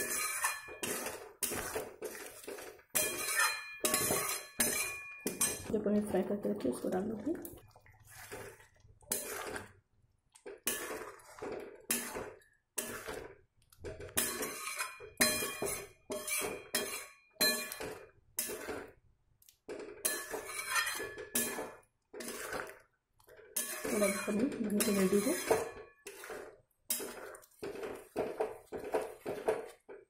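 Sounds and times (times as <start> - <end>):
spoon clinking on metal pan: 0.0 - 1.1, 2.9 - 5.7, 14.2 - 18.0, 20.0 - 21.7, 23.6 - 26.1
spoon scraping in wet gravy: 0.0 - 5.7, 7.1 - 30.0.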